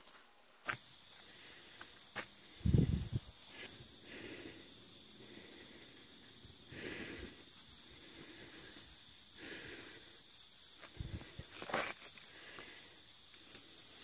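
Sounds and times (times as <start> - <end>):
insects trilling: 0.0 - 14.0.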